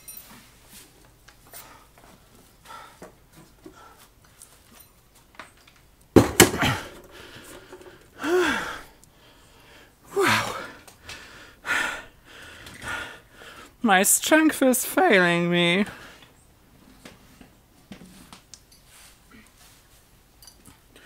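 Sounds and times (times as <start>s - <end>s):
heavy breathing: 1.5s - 4.2s, 6.6s - 13.8s
heavy amplifier thud on workbench: 6.2s - 7.0s
person grunting: 6.5s - 7.0s, 8.2s - 8.8s, 10.1s - 10.8s.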